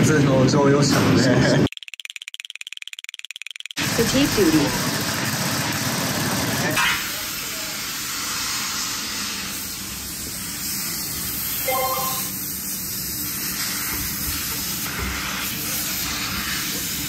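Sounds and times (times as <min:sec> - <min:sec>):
compressed air hissing: 0:07.0 - 0:17.0
short tone: 0:11.6 - 0:12.4.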